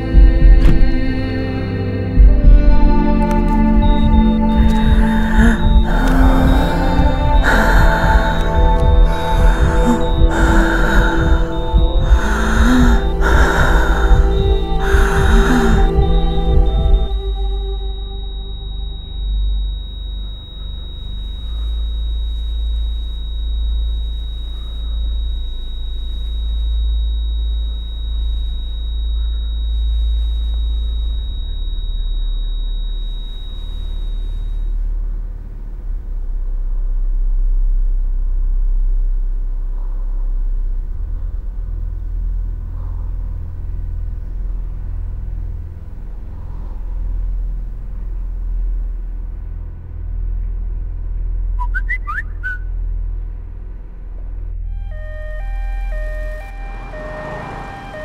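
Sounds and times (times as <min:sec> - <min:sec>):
deep rumbling drone: 0:00.0 - 0:58.0
high thin ringing tone: 0:03.7 - 0:35.0, 0:54.7 - 0:58.0.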